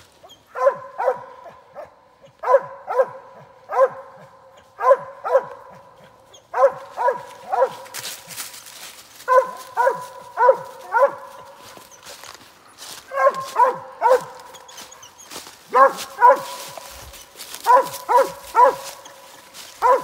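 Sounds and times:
dog barking: 0:00.5 - 0:08.2, 0:09.2 - 0:11.9, 0:13.0 - 0:20.0.

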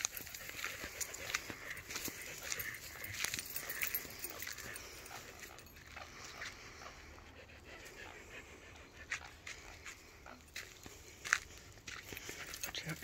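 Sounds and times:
dog panting faintly: 0:00.0 - 0:13.0.

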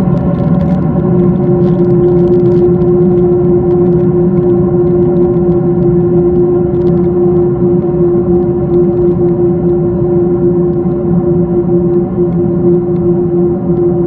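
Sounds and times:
jet engine cabin drone: 0:00.0 - 0:14.0
steady humming tone: 0:00.0 - 0:14.0.

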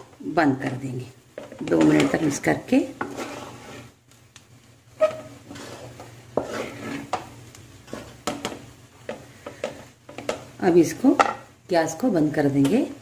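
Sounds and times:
spatula scraping metal pot: 0:01.4 - 0:04.0, 0:05.0 - 0:08.4.

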